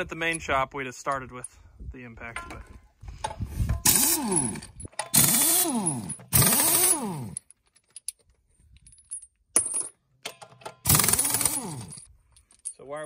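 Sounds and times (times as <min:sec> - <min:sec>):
air impact wrench buzzing: 0:03.7 - 0:07.4, 0:10.8 - 0:12.0.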